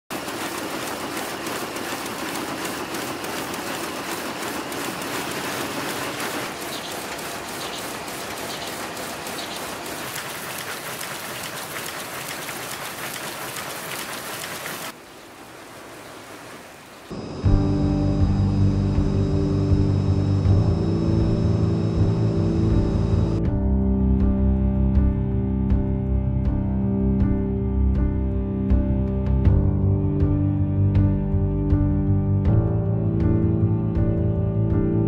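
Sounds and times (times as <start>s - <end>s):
textile machinery clattering: 0.1s - 14.9s.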